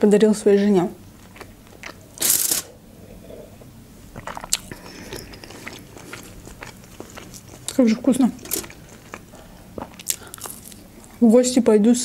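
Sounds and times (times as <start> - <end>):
chewing with crunches: 1.1 - 2.6, 3.2 - 11.2
person swallowing a drink: 1.2 - 10.8.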